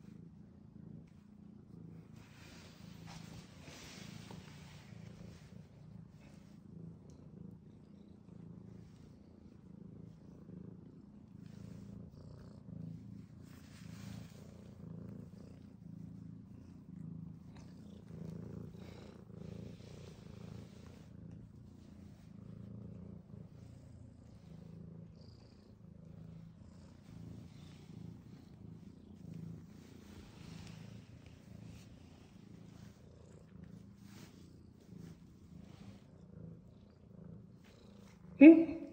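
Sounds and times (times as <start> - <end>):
cat purring: 0.0 - 38.9.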